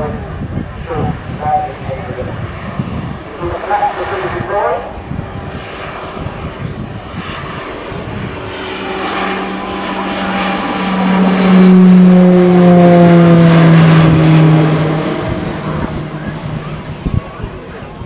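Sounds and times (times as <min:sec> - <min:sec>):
turboprop aircraft droning overhead: 0:00.0 - 0:18.0.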